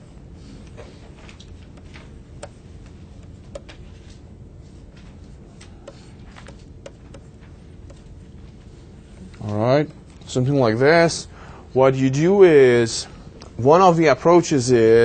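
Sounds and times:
faint electrical hum: 0.0 - 15.0
pen tapping on tablet screen: 1.6 - 3.8, 5.6 - 8.1.

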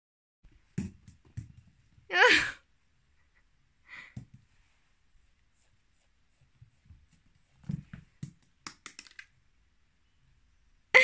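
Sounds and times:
ball knocking on wooden steps: 0.6 - 2.0, 7.6 - 9.2.

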